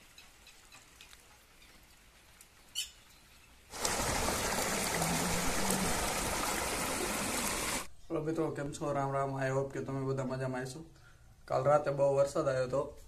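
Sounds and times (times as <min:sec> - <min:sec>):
faint bird chirps: 0:02.6 - 0:03.6
water rushing over rocks: 0:03.7 - 0:07.9.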